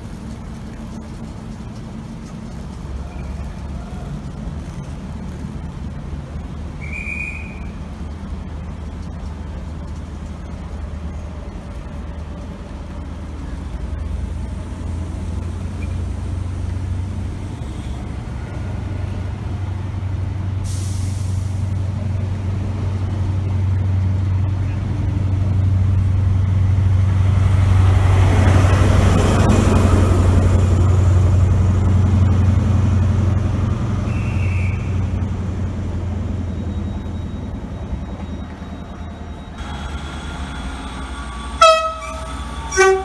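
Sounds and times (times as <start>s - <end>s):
diesel engine low hum: 0.0s - 43.0s
hiss of released air: 20.6s - 21.7s.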